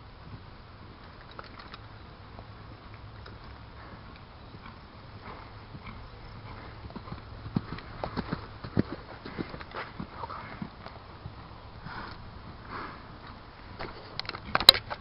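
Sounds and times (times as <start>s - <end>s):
horse hoofbeats on gravel: 2.4s - 12.0s.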